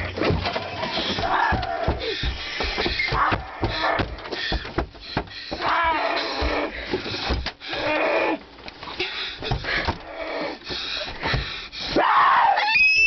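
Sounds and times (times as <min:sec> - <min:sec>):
dull knocks of scuffling: 0:00.0 - 0:07.6
harsh ragged breathing and gasping: 0:00.0 - 0:12.0.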